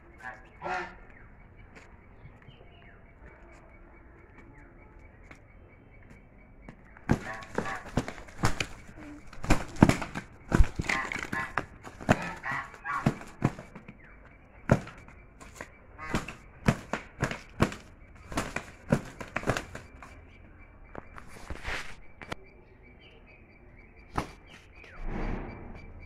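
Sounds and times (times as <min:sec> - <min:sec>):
geese honking: 0:00.0 - 0:01.2, 0:07.1 - 0:13.8, 0:15.7 - 0:20.1
geese wings slapping: 0:07.0 - 0:20.2, 0:24.1 - 0:24.6.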